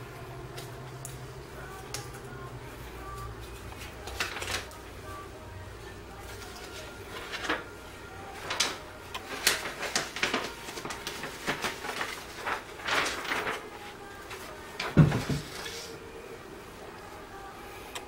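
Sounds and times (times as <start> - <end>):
plastic film peeling and crinkling: 3.1 - 4.9, 6.2 - 16.0.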